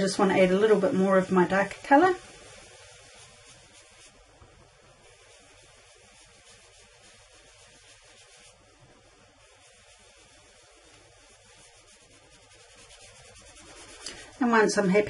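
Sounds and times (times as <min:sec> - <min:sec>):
sponge rubbing on cardstock: 0:00.0 - 0:15.0.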